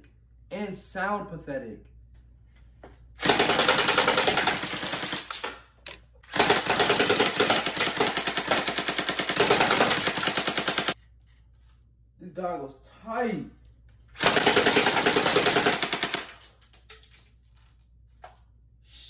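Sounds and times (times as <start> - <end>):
airsoft rifle firing full auto: 3.2 - 5.5, 6.3 - 11.0, 14.2 - 16.5.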